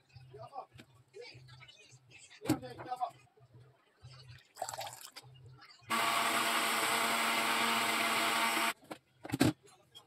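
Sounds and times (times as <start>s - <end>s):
electric blender motor: 5.9s - 8.8s.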